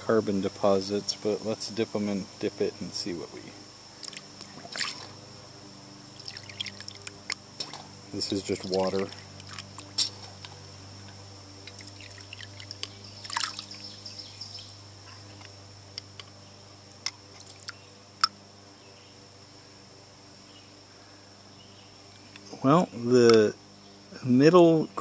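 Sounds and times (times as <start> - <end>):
water splashing in a bucket: 4.0 - 5.1, 6.2 - 7.1, 8.6 - 9.9, 11.6 - 13.8
water dripping: 6.2 - 7.1, 11.6 - 13.8.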